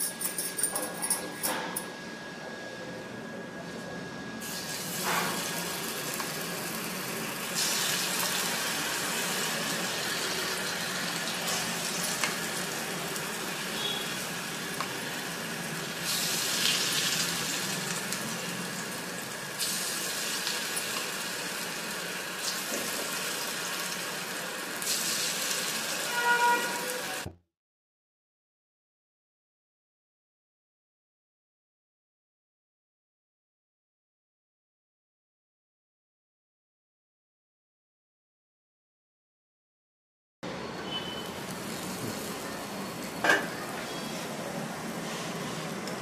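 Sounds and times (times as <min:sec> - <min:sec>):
batter sizzling in hot pan: 0:04.4 - 0:27.2.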